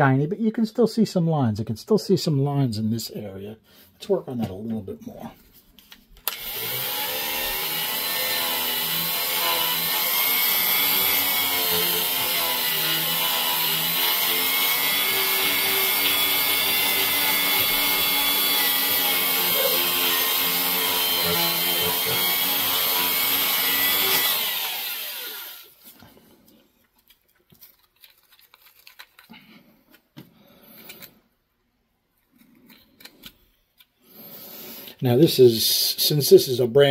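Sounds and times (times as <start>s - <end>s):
faint handling sounds: 4.4s - 6.2s, 25.8s - 34.1s
die grinder whine: 6.3s - 26.2s.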